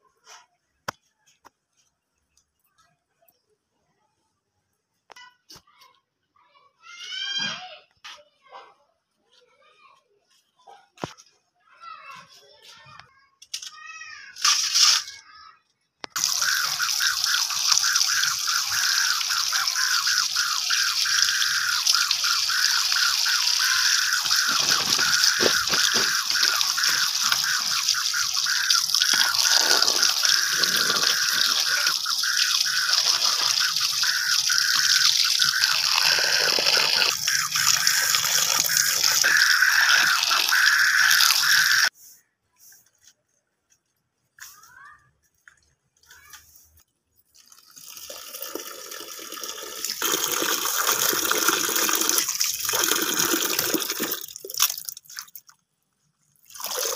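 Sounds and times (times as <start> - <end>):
running water splashing on vegetables: 14.4 - 15.1, 16.2 - 41.9, 47.3 - 55.5, 56.4 - 56.9.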